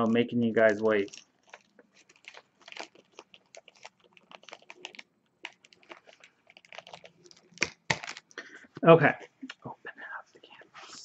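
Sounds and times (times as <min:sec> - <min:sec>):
packaging crinkling: 0:00.5 - 0:08.6.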